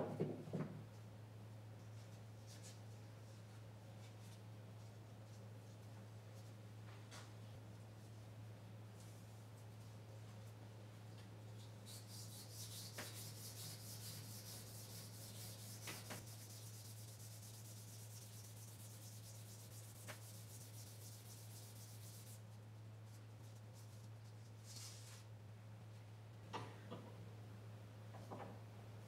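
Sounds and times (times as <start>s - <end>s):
steady low hum: 0.0s - 29.0s
abrasive strip rasping on metal: 11.9s - 22.3s.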